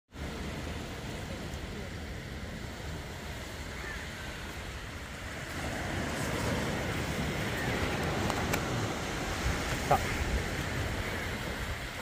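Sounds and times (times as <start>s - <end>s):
waves washing on shore: 0.1s - 12.0s
wind rumbling on microphone: 0.2s - 12.0s.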